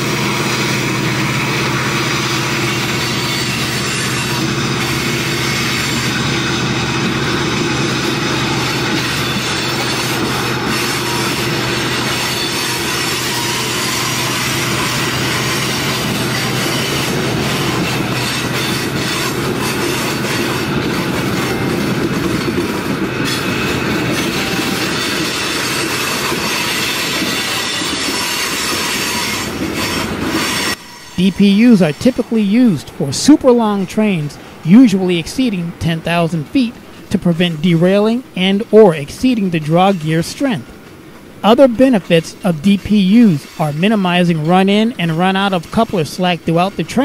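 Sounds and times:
freight train wheels clattering: 0.0s - 35.1s.

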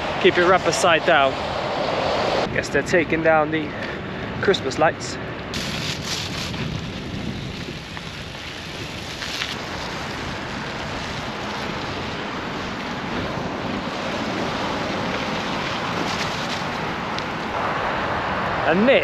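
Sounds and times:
tyres rolling through snow: 5.5s - 18.5s
wind on microphone: 5.5s - 19.0s.

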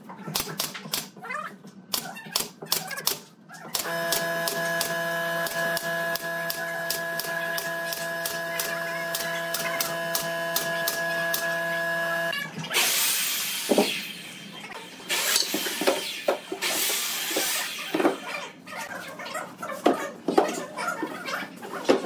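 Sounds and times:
nail gun firing: 3.8s - 12.2s
steady hum: 3.8s - 12.4s.

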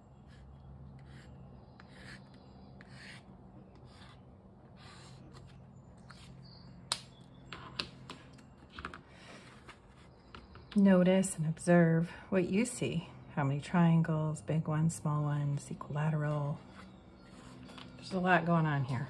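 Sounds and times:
low steady hum: 0.0s - 19.0s
pen scratching on paper: 0.2s - 4.2s.

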